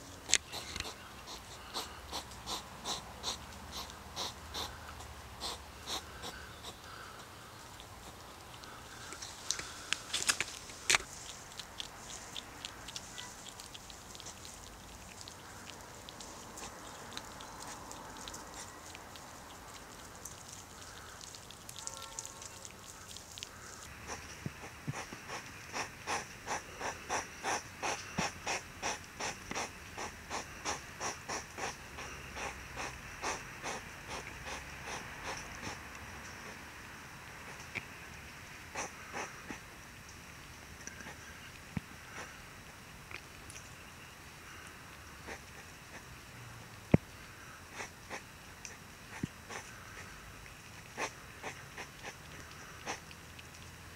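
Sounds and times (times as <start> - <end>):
hedgehog huffing: 0.3 - 10.0, 23.6 - 36.6, 38.7 - 39.7, 45.2 - 46.0, 47.7 - 48.3, 49.1 - 50.1, 51.0 - 53.0
hedgehogs crunching pellets: 5.4 - 35.9.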